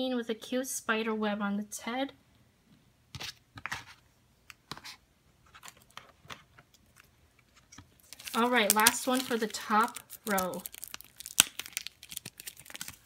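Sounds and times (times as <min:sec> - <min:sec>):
hand rummaging plastic packs: 0:08.0 - 0:13.0.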